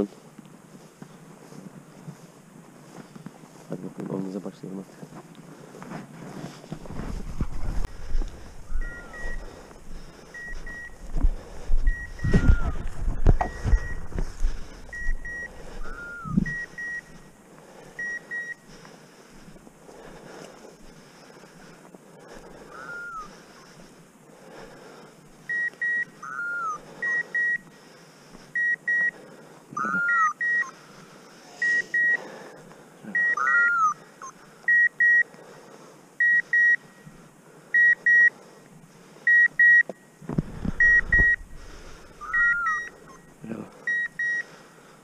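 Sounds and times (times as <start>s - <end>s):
footsteps through dry stubble: 0.6s - 18.0s
falling electronic chirp: 8.7s - 9.4s, 11.9s - 14.1s, 14.9s - 17.2s, 25.5s - 27.6s, 29.8s - 30.8s, 33.2s - 34.4s, 42.2s - 43.3s
beeper collar double beep: 12.0s - 12.8s, 33.2s - 34.0s, 42.3s - 43.2s.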